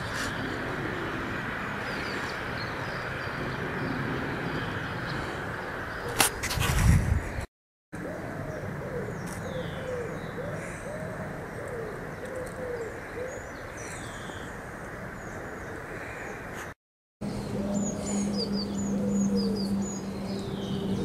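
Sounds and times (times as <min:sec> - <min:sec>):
pigeon cooing: 0:00.0 - 0:02.2, 0:08.0 - 0:13.6, 0:17.4 - 0:19.7
small birds chirping: 0:08.2 - 0:21.0.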